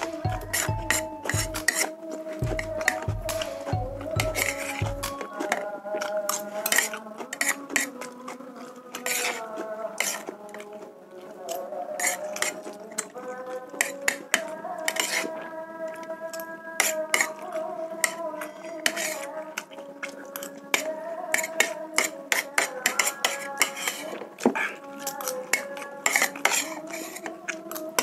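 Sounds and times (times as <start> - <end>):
held tones changing pitch: 0.0 - 1.7, 2.4 - 5.6
cutlery scraping plastic plate: 0.0 - 1.9, 4.3 - 8.0, 8.9 - 9.4, 10.0 - 10.7, 12.0 - 13.1, 13.8 - 15.3, 16.8 - 17.4, 18.0 - 19.3, 20.4 - 27.8.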